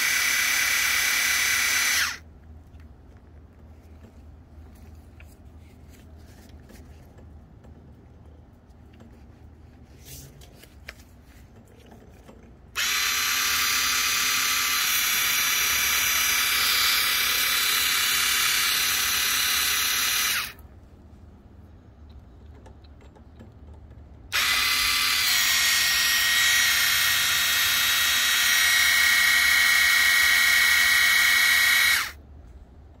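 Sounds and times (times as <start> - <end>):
spray gun pump whining: 0.0 - 2.2, 12.8 - 20.6, 24.3 - 32.2.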